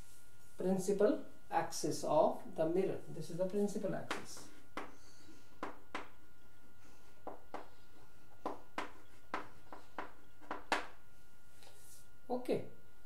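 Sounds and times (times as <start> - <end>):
chalk tapping on chalkboard: 4.1 - 5.0, 5.6 - 6.2, 7.2 - 11.0.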